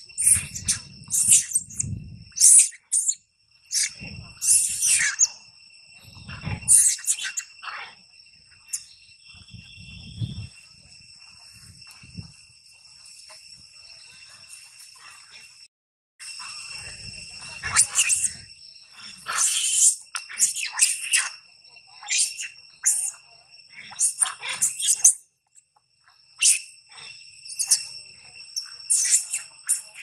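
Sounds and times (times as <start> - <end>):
macaques shrieking: 0.0 - 5.4, 6.1 - 8.0, 17.4 - 18.5, 19.1 - 23.2, 23.8 - 25.2, 26.4 - 30.0.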